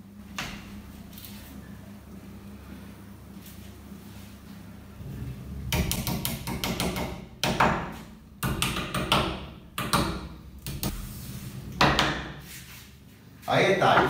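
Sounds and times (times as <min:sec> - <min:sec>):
small hammer tapping wooden plugs: 0:08.4 - 0:10.2.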